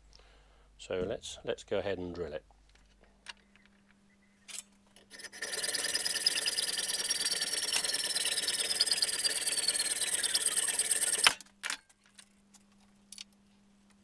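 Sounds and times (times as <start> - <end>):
drill bit scraping metal: 5.0 - 11.4
pillar drill whining: 5.0 - 11.4.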